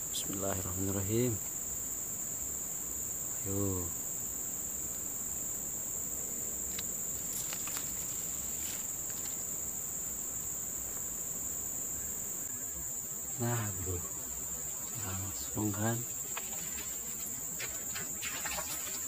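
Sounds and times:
high-pitched insect chorus: 0.0 - 19.0
faint clicks: 6.6 - 8.2.

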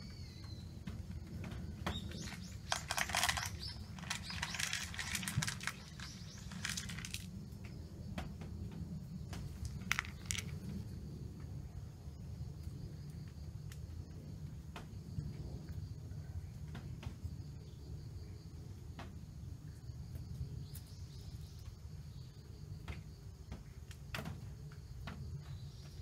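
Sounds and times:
dry cat food rattling into bowl: 1.8 - 7.4, 9.4 - 10.8.

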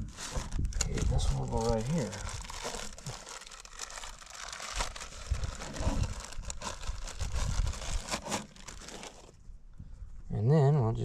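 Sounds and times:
wind buffeting microphone: 0.0 - 2.6, 4.8 - 8.1
packaging crinkling: 0.0 - 9.4.

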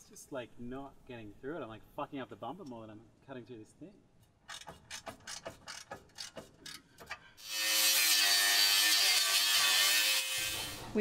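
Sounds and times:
rasping strokes on metal: 4.6 - 10.8
power tool cutting metal: 7.4 - 10.9.

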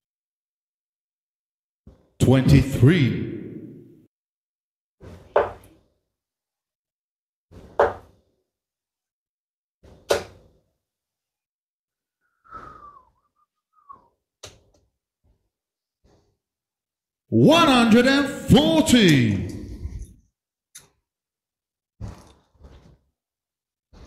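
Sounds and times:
darts thudding into dartboard: 5.3 - 5.6, 7.6 - 8.2, 9.9 - 10.5.

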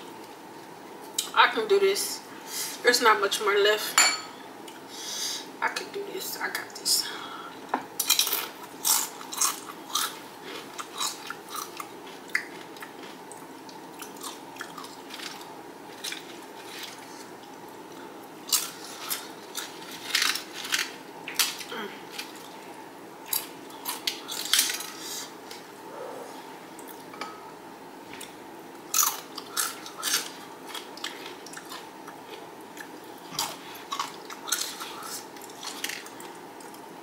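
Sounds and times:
chips crunching: 8.0 - 13.2, 14.0 - 17.3, 18.4 - 22.6, 23.3 - 25.6, 28.9 - 36.8
quiet chewing: 28.1 - 36.9.

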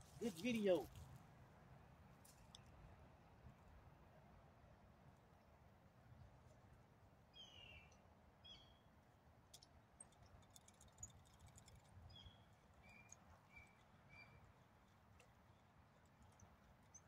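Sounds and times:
faint bird chirps: 7.3 - 8.9, 12.1 - 14.5.

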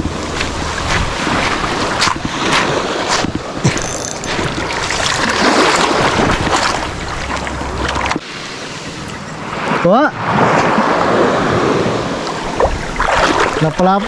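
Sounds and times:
wind buffeting microphone: 0.0 - 8.2.

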